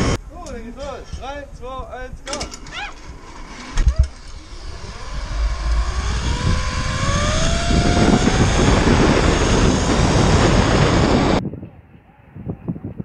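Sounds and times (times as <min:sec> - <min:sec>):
zipline trolley whining on cable: 0:03.0 - 0:11.4
wind rushing over microphone: 0:03.8 - 0:13.0.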